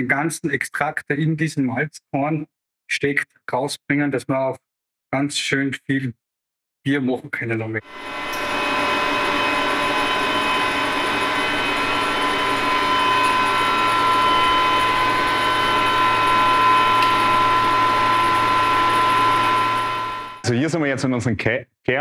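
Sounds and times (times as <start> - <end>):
machinery hum and whine: 7.9 - 20.4.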